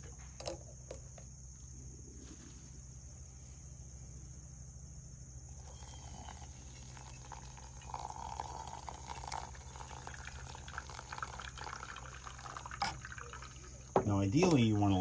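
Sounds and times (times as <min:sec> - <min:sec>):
hot water pouring onto coffee: 0:05.5 - 0:15.0.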